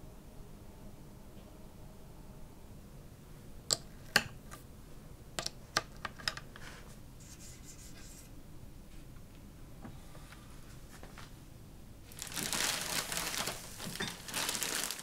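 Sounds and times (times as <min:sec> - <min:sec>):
soft brushing rustle: 0:12.0 - 0:15.0.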